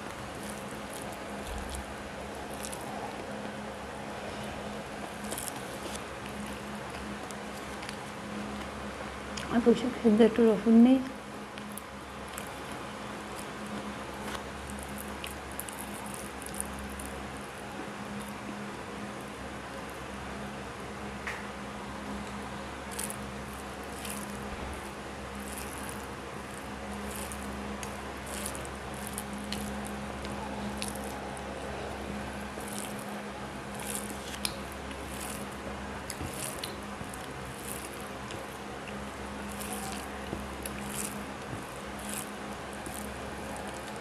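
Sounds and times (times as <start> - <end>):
fingers squishing rice: 0.0 - 9.5, 11.4 - 20.1, 22.1 - 44.0
person chewing: 0.2 - 3.6, 4.3 - 8.0, 11.5 - 17.2, 22.9 - 44.0.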